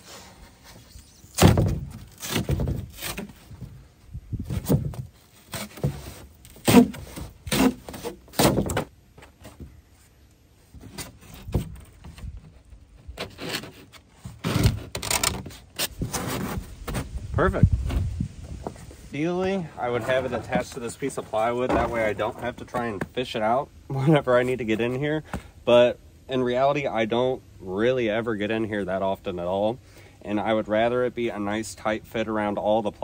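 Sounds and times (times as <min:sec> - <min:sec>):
foam scraping and squeaking on wood: 0:00.0 - 0:17.2, 0:18.6 - 0:23.0.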